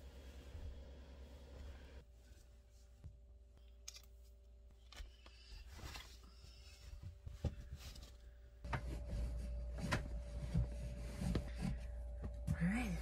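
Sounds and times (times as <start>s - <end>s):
steady low hum: 7.3s - 13.0s.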